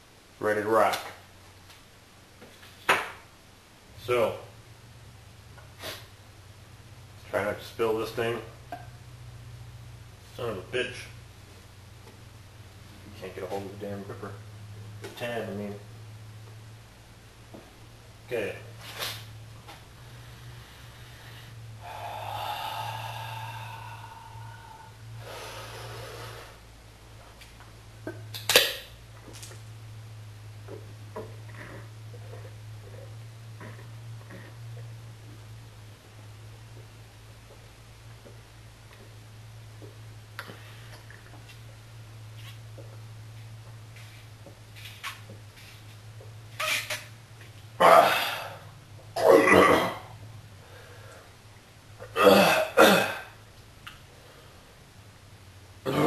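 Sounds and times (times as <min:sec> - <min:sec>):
man breathing hard through nose: 0:20.0 - 0:26.7, 0:50.6 - 0:51.4
man coughing and sputtering: 0:52.2 - 0:53.3.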